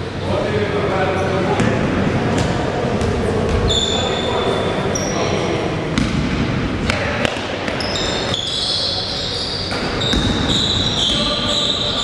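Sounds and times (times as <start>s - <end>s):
din of gym hall: 0.0s - 12.0s
shoes squeaking: 3.5s - 5.3s, 7.7s - 12.0s.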